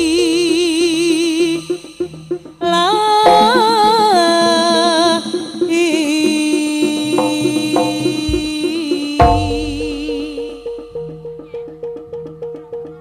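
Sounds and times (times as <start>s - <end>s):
wavering lead melody: 0.0s - 11.7s
drum beat: 7.2s - 11.3s.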